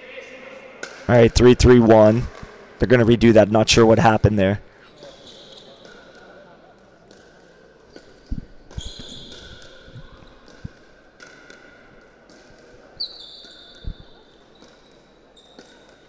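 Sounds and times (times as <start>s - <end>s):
shoes squeaking on court: 4.8s - 6.3s, 7.9s - 10.8s, 12.6s - 16.0s.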